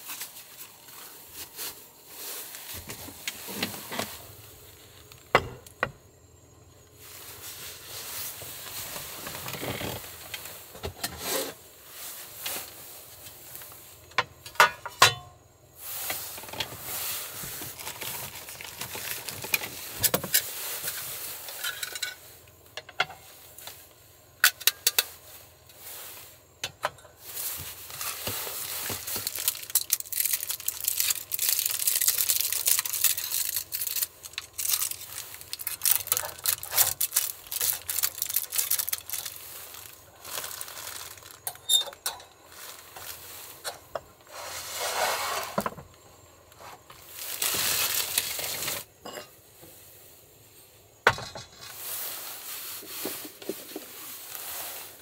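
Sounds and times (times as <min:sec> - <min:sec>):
rustling: 0:00.0 - 0:05.4, 0:06.9 - 0:14.0, 0:15.8 - 0:22.4, 0:27.1 - 0:55.0
steady hiss: 0:00.0 - 0:55.0.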